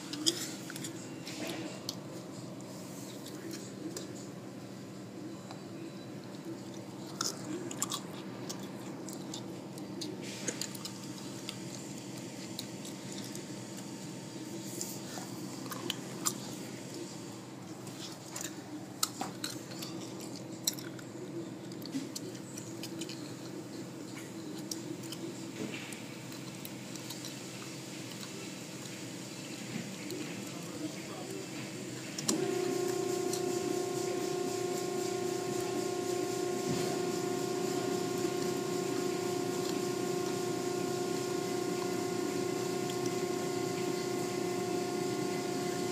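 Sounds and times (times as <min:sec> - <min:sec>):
car wash machinery hum: 0:00.0 - 0:05.3, 0:23.5 - 0:45.9.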